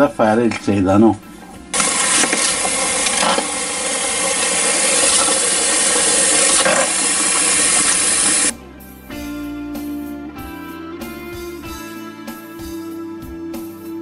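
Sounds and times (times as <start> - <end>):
guitar music: 8.2 - 14.0.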